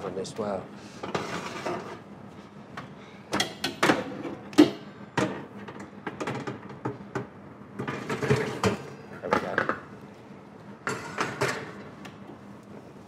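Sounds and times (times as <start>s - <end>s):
oven trays clattering and scraping: 1.0s - 2.0s, 7.8s - 9.7s, 10.8s - 11.8s.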